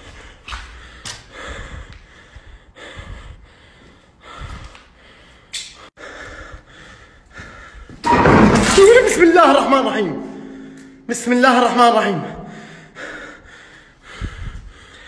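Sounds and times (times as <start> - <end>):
person breathing heavily: 0.0 - 8.0, 12.4 - 15.0.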